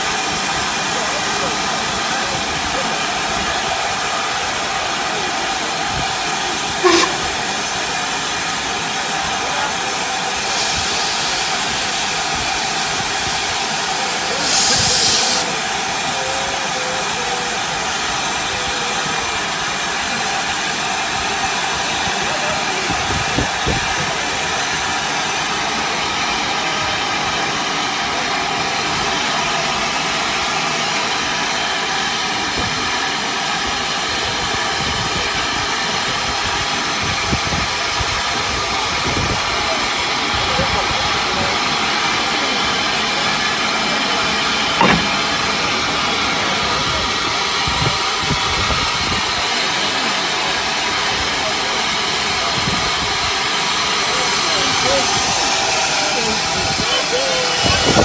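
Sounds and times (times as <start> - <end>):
gush of steam: 0.0 - 58.0
steam locomotive hissing: 0.0 - 58.0
sharp metallic knock: 44.8 - 45.4.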